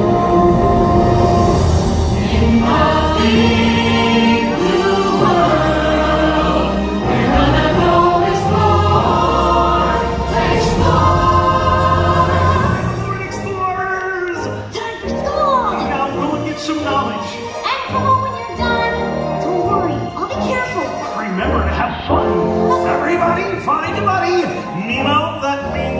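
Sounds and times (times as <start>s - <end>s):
voices singing together: 0.0s - 13.4s.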